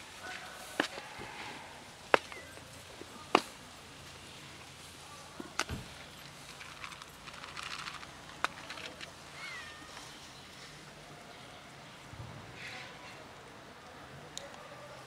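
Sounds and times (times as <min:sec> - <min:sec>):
dry food rattling in plastic container: 0:05.4 - 0:09.3.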